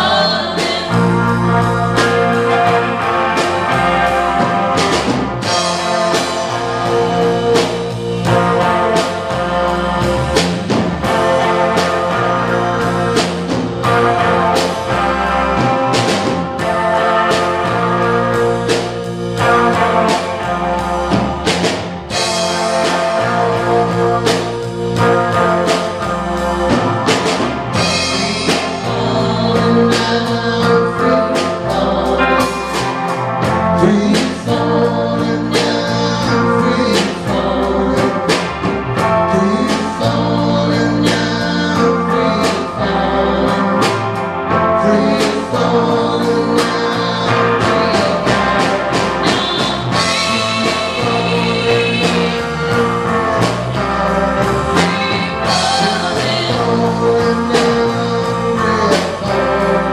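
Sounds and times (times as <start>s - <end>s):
man singing: 0.0s - 5.0s, 27.7s - 59.9s
rock band playing: 0.0s - 59.9s.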